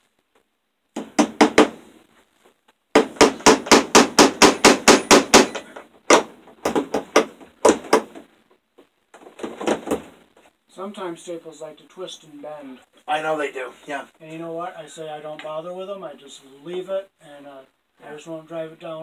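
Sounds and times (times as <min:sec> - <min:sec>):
hammer tapping staples into wood: 0:01.0 - 0:01.8, 0:03.0 - 0:08.2.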